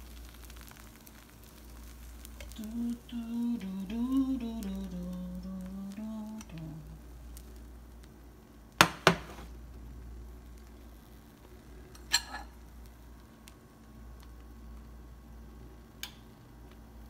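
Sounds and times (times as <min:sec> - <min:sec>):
kitchenware knocking: 0:08.8 - 0:09.5.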